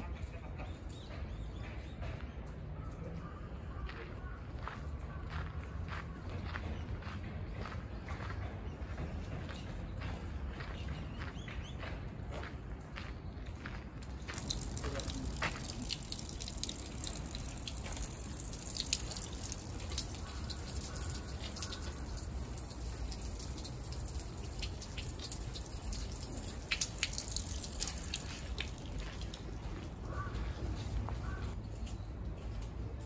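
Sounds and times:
water splashing into stone basin: 14.3 - 30.6.

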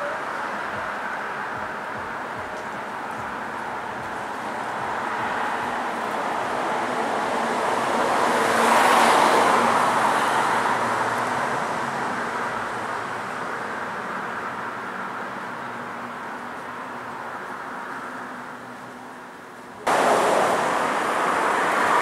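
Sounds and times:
car passing by: 3.0 - 18.4, 19.8 - 22.0.

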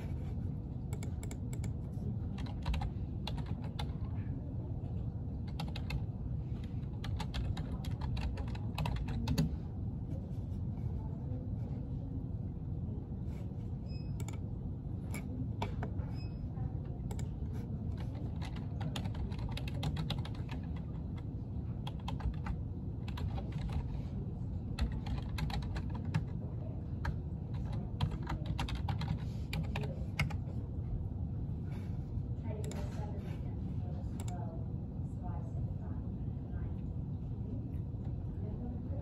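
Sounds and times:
low background rumble: 0.0 - 39.0
typing on computer keyboard: 0.9 - 4.1, 5.4 - 9.6, 14.1 - 14.5, 17.0 - 24.1, 24.7 - 30.4.

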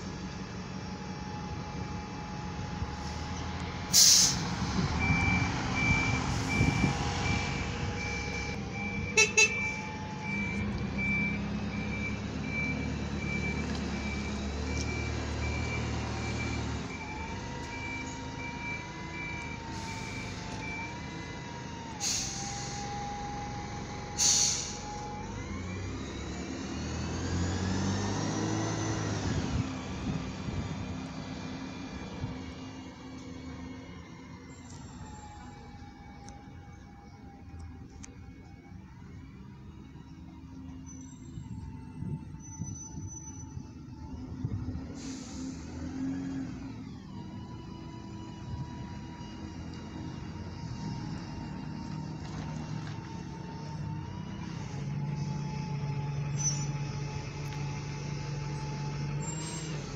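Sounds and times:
bus engine and gear whine: 0.0 - 59.9
bus engines running: 0.0 - 59.9
air brake hisses: 3.0 - 4.6, 22.0 - 23.0, 24.2 - 24.9, 44.9 - 45.9
reversing alarm beeping: 4.0 - 21.2.

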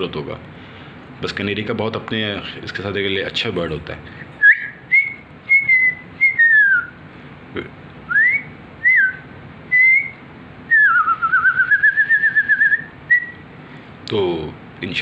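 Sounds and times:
person whistling: 4.4 - 7.0, 8.1 - 13.4.

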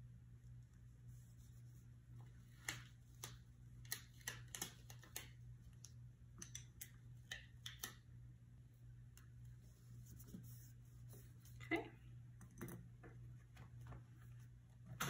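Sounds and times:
low steady hum: 0.0 - 15.0
fingers tapping on paper pages: 2.6 - 5.4.

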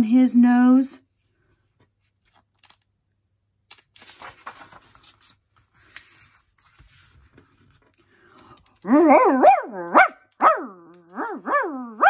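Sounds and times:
paper rustling and sliding: 3.7 - 8.0
faint ticks of page: 3.7 - 8.8.

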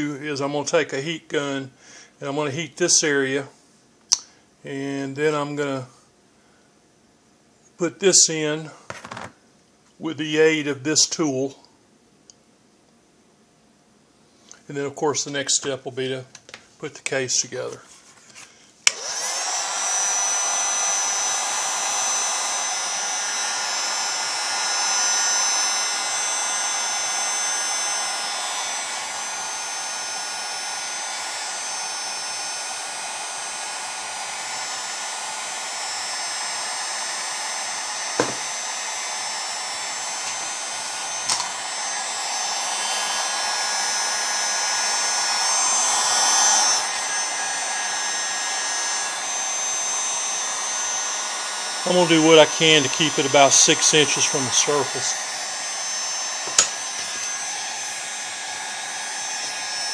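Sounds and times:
heat gun blowing: 18.3 - 59.9.

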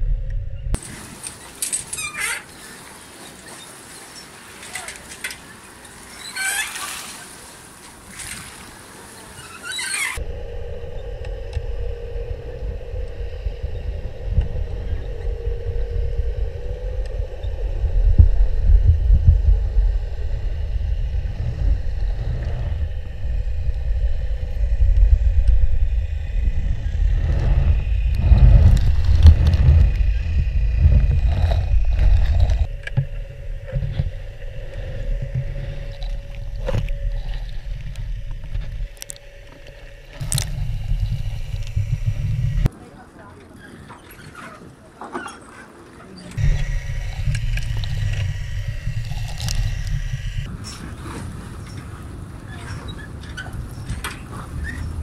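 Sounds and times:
muffled underwater rumble: 0.0 - 0.9, 10.0 - 42.7, 46.3 - 55.0
faint steady hums: 7.3 - 43.6, 45.8 - 55.0.

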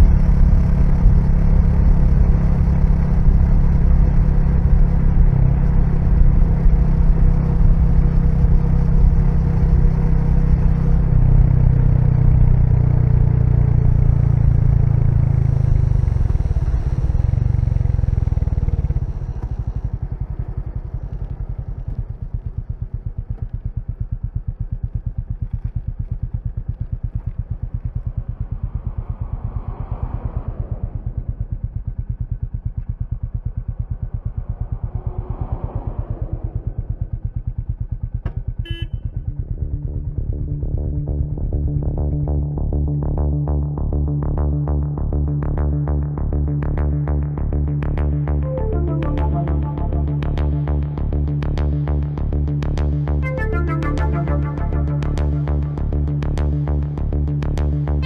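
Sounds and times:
motorcycle engine thumping: 16.0 - 29.6, 36.3 - 39.4.

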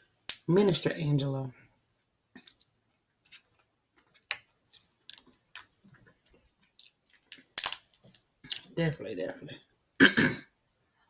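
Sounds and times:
crab shells cracking: 2.4 - 5.7, 6.6 - 8.7.

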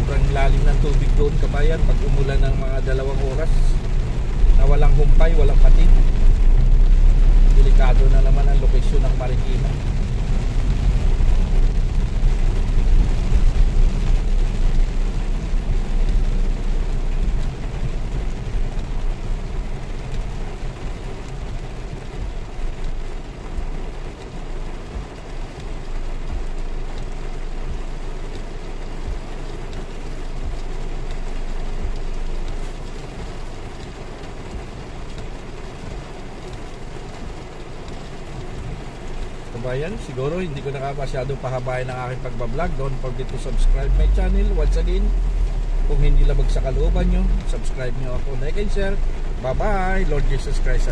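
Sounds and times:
rain hissing on car roof: 0.0 - 50.9.

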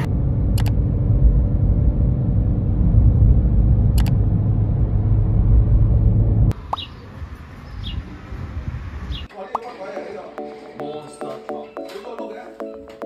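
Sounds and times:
car road and engine rumble: 0.0 - 9.3
sharp clicks: 0.6 - 0.8, 4.0 - 4.2.

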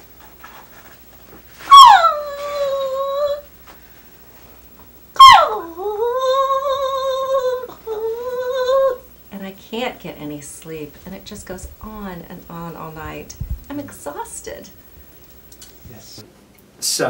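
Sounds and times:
woman howling like a dog: 1.7 - 3.5, 5.2 - 9.0.

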